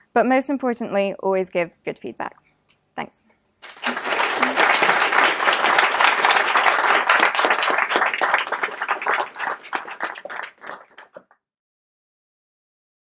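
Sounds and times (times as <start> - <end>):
audience applauding: 3.6 - 11.4.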